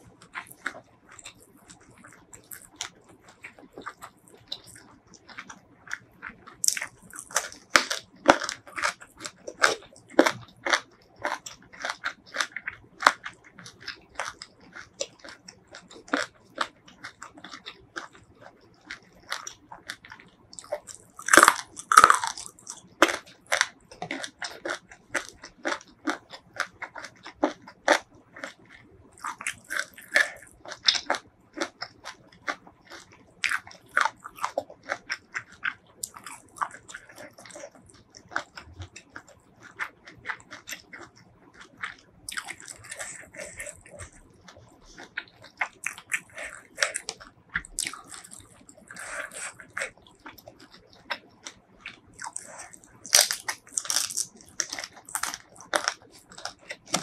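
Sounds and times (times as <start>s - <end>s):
chewing and crunching food: 0.0s - 57.0s.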